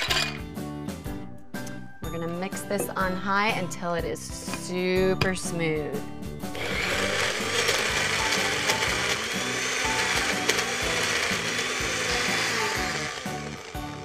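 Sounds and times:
blender crushing ice: 0.0 - 0.4, 6.6 - 14.0.

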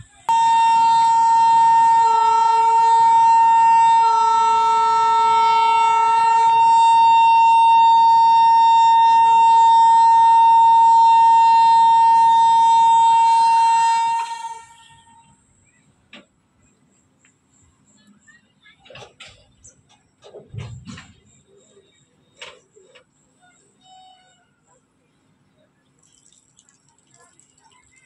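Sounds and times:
loud steady tone: 0.0 - 16.7.

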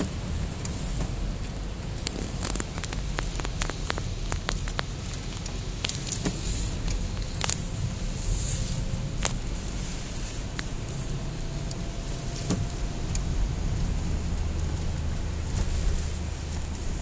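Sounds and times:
low wind rumble: 0.0 - 17.0
raindrops ticking on car glass: 0.0 - 17.0.

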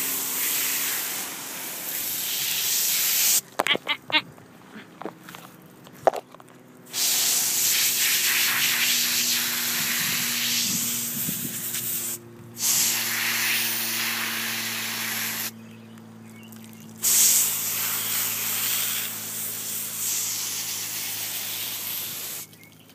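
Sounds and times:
hose nozzle spraying water: 0.0 - 3.6, 6.9 - 15.5, 17.0 - 22.5.

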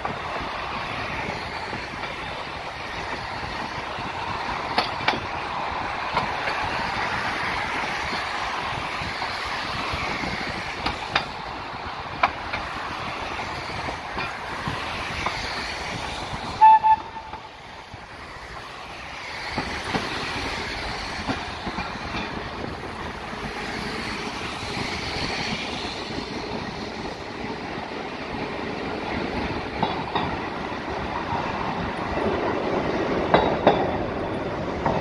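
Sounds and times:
tram wheels rumbling on rails: 0.0 - 35.0
wheels clicking over rail joints: 0.0 - 35.0
tram horn toots: 16.5 - 17.6.

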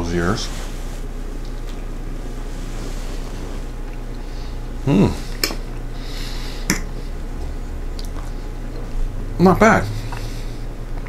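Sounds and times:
low hum: 0.0 - 11.0
person humming mm: 4.8 - 5.5.

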